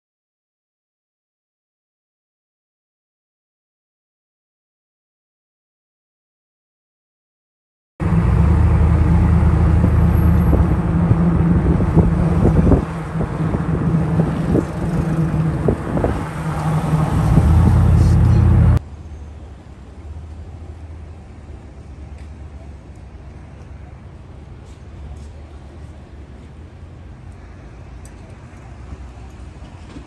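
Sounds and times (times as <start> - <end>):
vehicle engine running: 8.0 - 29.6
outdoor background noise: 8.0 - 30.0.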